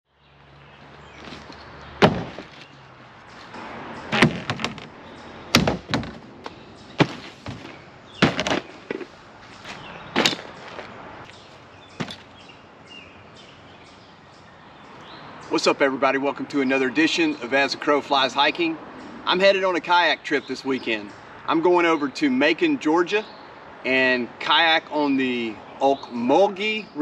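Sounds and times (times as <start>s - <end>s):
gear dropped on ground: 7.0s - 10.9s, 12.0s - 12.3s.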